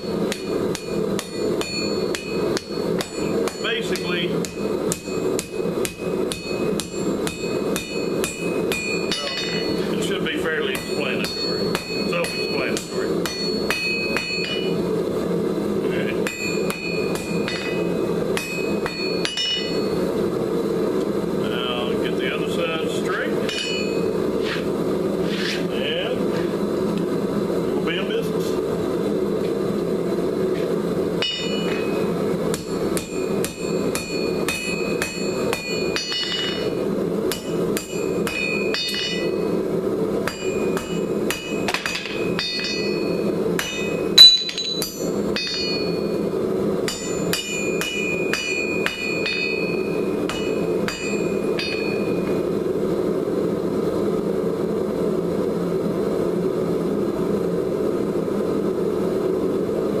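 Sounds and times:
hammer ringing on anvil: 0:00.0 - 0:14.8, 0:16.2 - 0:20.0, 0:23.4 - 0:24.2, 0:31.2 - 0:39.6, 0:40.2 - 0:52.4.

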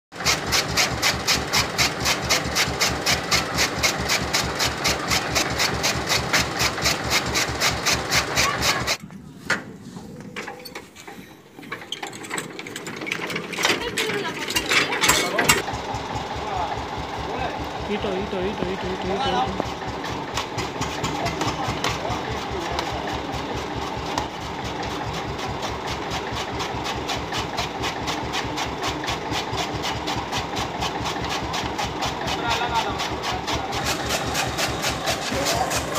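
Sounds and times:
tractor engine rumble: 0:00.2 - 0:35.9
chaff cutter clatter: 0:12.0 - 0:15.6, 0:26.6 - 0:35.9.

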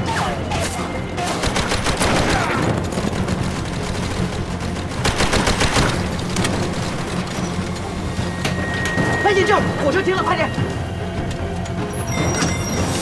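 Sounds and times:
automatic gunfire bursts: 0:03.1 - 0:06.0.

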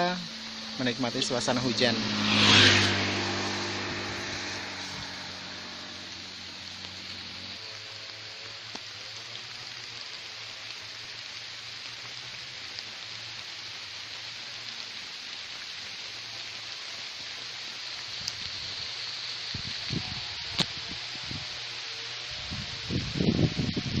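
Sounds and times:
low engine drone: 0:00.0 - 0:17.9
rain hissing: 0:00.0 - 0:24.0.

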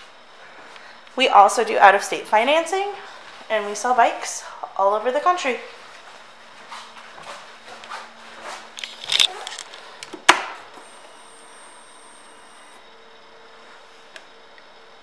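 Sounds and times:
fuel pump whine: 0:05.9 - 0:15.0.

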